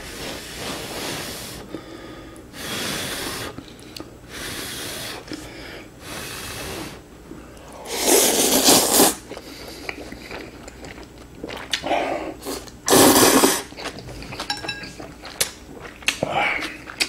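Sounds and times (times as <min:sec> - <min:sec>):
slurping noodles: 0:06.0 - 0:07.0, 0:07.8 - 0:10.5, 0:11.5 - 0:14.2
wet chewing: 0:09.2 - 0:11.9, 0:13.6 - 0:17.0.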